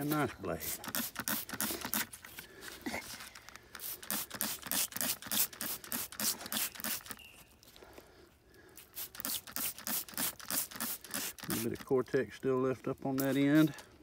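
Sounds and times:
spray bottle squirting: 0.0 - 2.4, 3.0 - 7.4, 8.8 - 11.9, 13.1 - 13.8.

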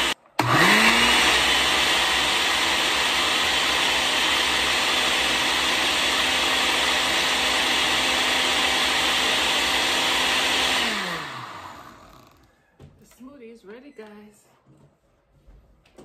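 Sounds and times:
blender motor spinning down: 0.0 - 12.6
blender running: 0.0 - 12.6.

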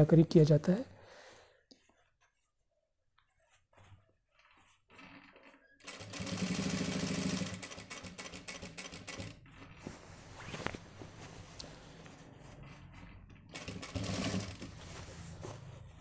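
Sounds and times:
cloth handling: 1.8 - 6.2, 9.5 - 16.0
sewing machine stitching: 4.6 - 9.7, 12.9 - 14.9.

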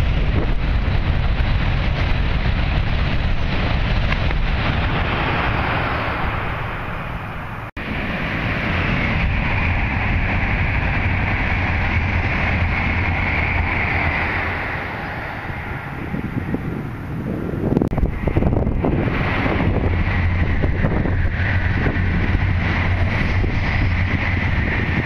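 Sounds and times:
high even train hum: 0.0 - 25.0
high-speed train rushing past: 0.0 - 25.0
wind buffeting microphone: 0.0 - 25.0.

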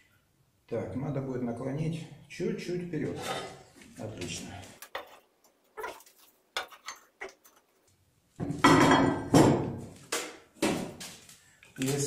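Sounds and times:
steel bar clattering and scraping: 3.1 - 3.7, 4.8 - 7.7.

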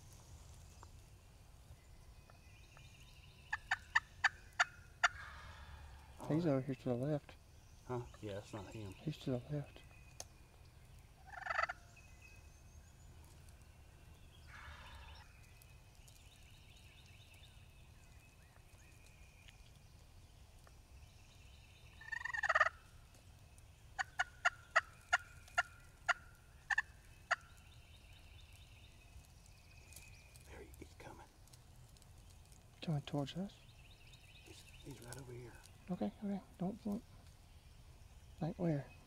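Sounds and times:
turkey gobbling: 3.5 - 5.8, 11.2 - 11.9, 22.0 - 22.8, 24.0 - 27.5
turkey yelps: 3.5 - 5.8, 11.2 - 11.8, 22.0 - 22.8, 24.0 - 27.4.

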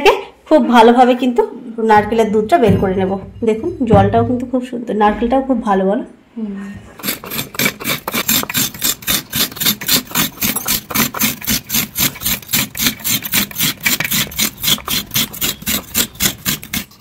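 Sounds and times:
coconut grated on metal scraper: 7.0 - 17.0.

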